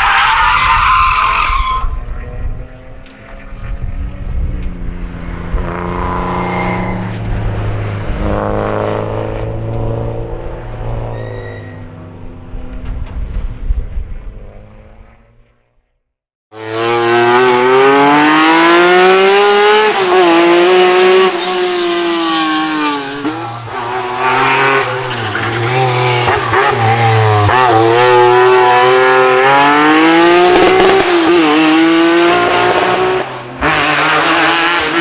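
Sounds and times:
race car engine shifting gears: 0:19.9 - 0:35.0.

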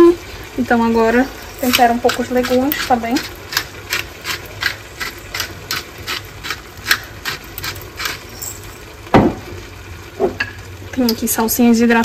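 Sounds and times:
spice mill clicking: 0:01.7 - 0:08.6.

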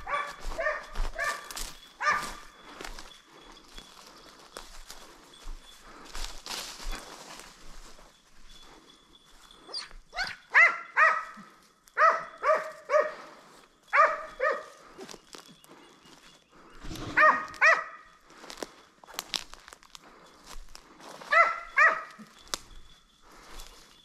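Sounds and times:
dog barking: 0:00.0 - 0:02.5, 0:10.2 - 0:14.8, 0:17.1 - 0:18.1, 0:21.3 - 0:22.4.

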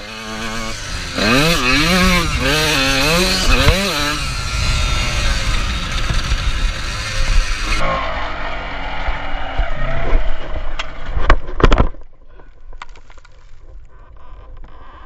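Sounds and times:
dirt bike engine revving: 0:00.0 - 0:10.8.

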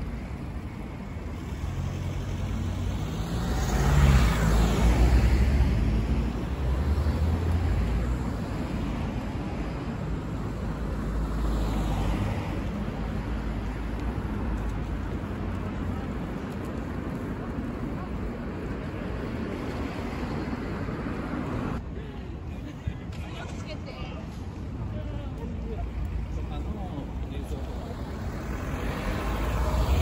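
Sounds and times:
cars driving past: 0:00.8 - 0:21.8, 0:25.7 - 0:30.0.

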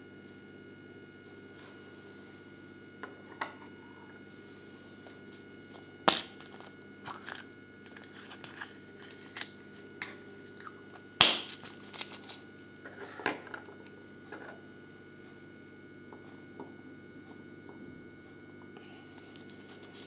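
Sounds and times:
paper leaflet crinkling: 0:11.6 - 0:12.4.

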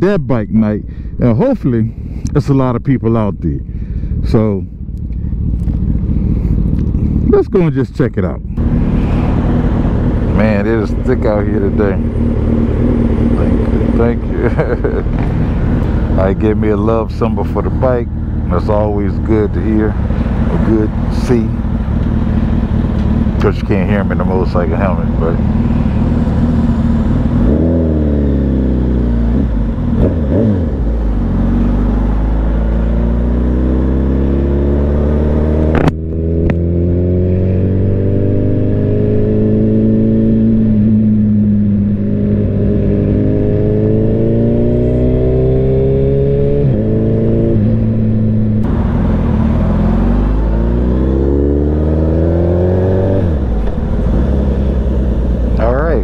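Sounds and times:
motorcycle engine revving: 0:08.5 - 0:56.0
sharp click: 0:35.7 - 0:36.6.

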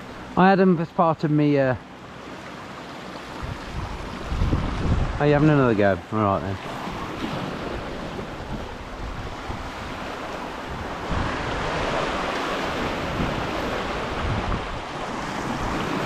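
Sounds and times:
sea waves breaking over rocks: 0:02.2 - 0:16.0
wind buffeting the microphone: 0:03.3 - 0:16.0.

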